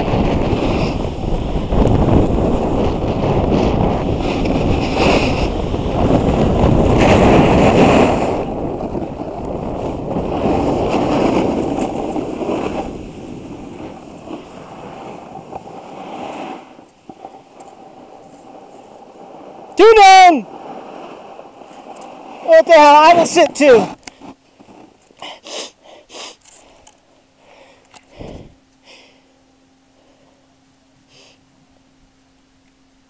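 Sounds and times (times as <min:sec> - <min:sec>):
wind rushing over microphone: 0:00.0 - 0:24.0, 0:28.1 - 0:28.6
snowboard scraping on snow: 0:00.0 - 0:26.4.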